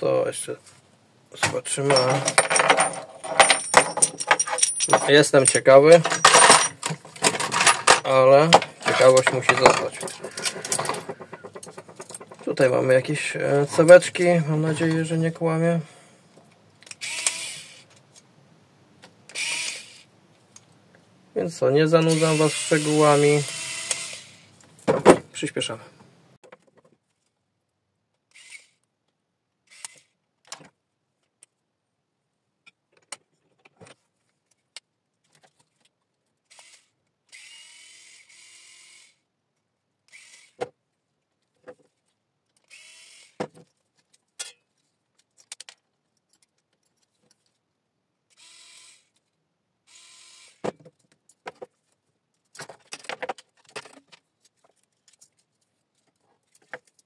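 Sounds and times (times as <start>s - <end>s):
metal parts clicking and clinking: 1.8s - 12.7s, 44.0s - 47.6s
electric screwdriver running: 17.0s - 17.8s, 22.1s - 24.5s, 42.7s - 43.4s.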